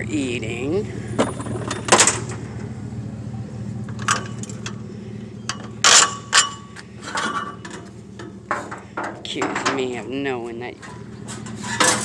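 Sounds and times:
steady low hum: 0:00.0 - 0:12.0
plastic toolbox clacks and rattles: 0:08.5 - 0:10.1, 0:10.8 - 0:12.0.

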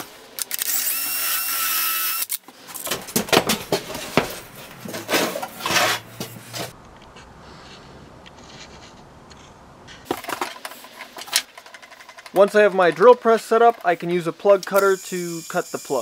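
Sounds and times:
cordless drill whining: 0:00.6 - 0:02.4, 0:14.7 - 0:16.0
tools and board handled: 0:02.4 - 0:06.7, 0:08.3 - 0:14.8.

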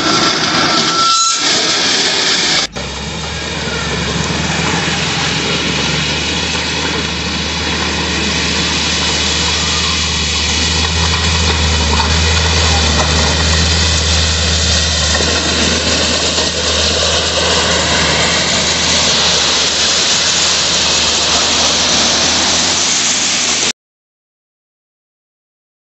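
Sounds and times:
diesel engine running under load: 0:00.0 - 0:23.7.

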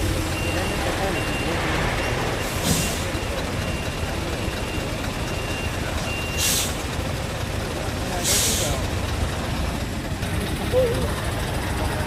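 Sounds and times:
reversing beeper: 0:00.0 - 0:06.8
truck engine rumbling: 0:00.0 - 0:12.0
air brakes hissing: 0:02.1 - 0:03.2, 0:06.2 - 0:07.0, 0:08.2 - 0:08.9.

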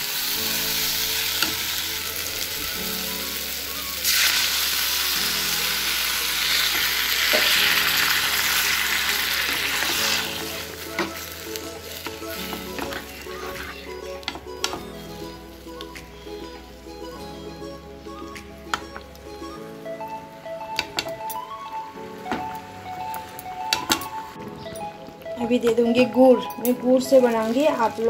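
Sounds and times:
food sizzling in a pan: 0:00.0 - 0:15.8.

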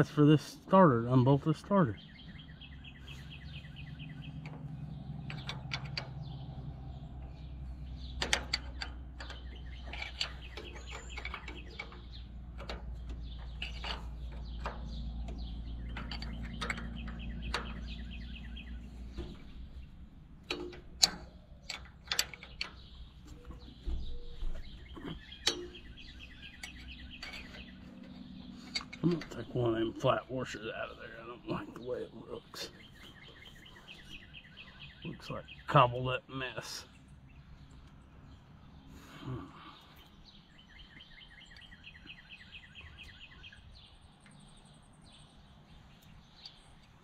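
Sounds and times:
birds chirping in trills: 0:00.0 - 0:47.0
low steady rumble: 0:00.0 - 0:47.0
wrench clinking on metal bolts: 0:04.4 - 0:06.4, 0:08.2 - 0:29.5.

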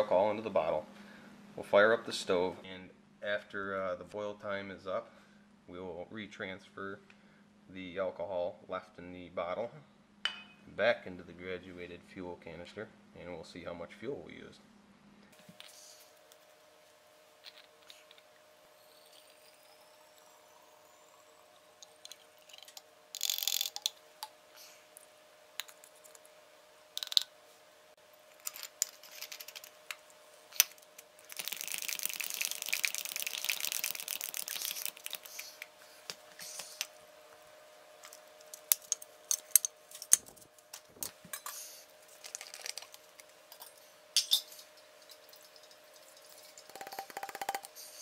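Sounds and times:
liquid pouring into bottle: 0:31.3 - 0:35.3
plastic bottles clicking and knocking: 0:46.7 - 0:47.8.

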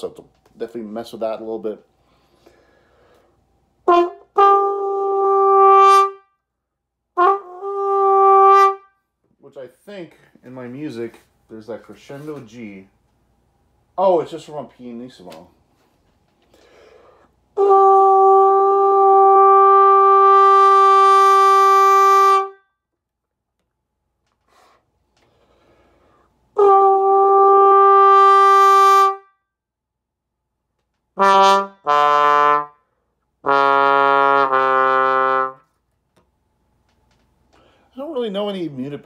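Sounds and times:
muted bass trombone notes: 0:03.8 - 0:06.2, 0:07.2 - 0:08.9, 0:17.6 - 0:22.6, 0:26.5 - 0:29.3, 0:31.2 - 0:32.8, 0:33.4 - 0:35.6.

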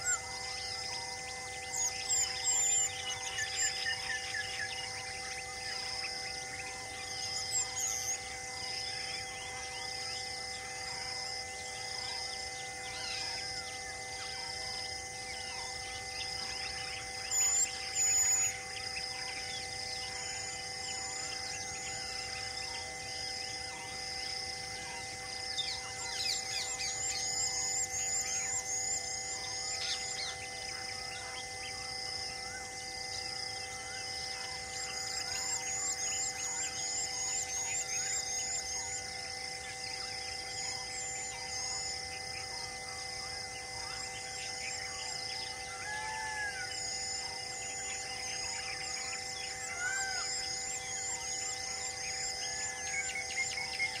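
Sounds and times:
faint steady hum: 0:00.0 - 0:54.0
birds calling: 0:39.8 - 0:54.0.

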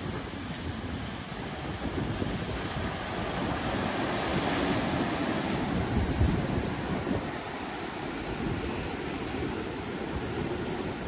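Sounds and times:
surf breaking over rocks: 0:00.0 - 0:11.0
wind rumbling on microphone: 0:00.0 - 0:11.0.

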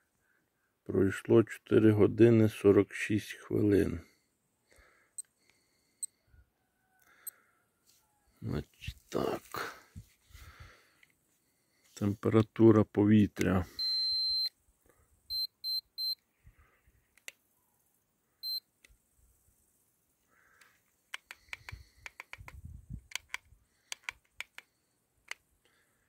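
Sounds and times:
short high wristwatch beeps: 0:13.8 - 0:14.6, 0:15.3 - 0:16.2, 0:18.4 - 0:18.7
light clicks: 0:20.6 - 0:25.4.

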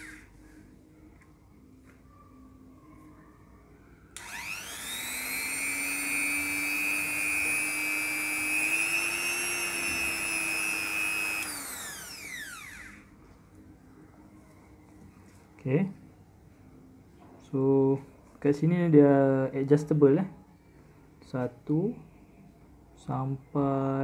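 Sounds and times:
rotary tool motor whine: 0:00.0 - 0:00.3, 0:04.2 - 0:13.1.

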